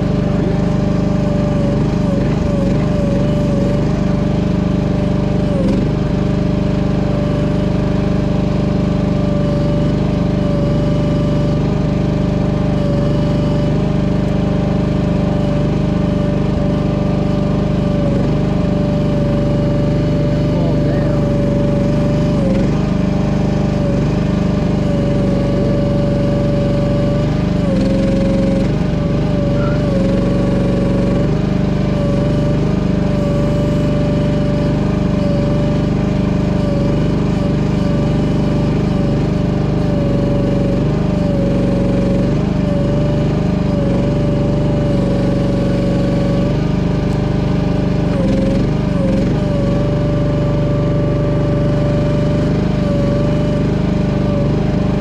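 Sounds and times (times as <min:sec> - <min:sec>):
mini excavator engine hum: 0:00.0 - 0:55.0
high hydraulic whine: 0:18.0 - 0:22.8, 0:28.6 - 0:31.3, 0:31.9 - 0:38.0.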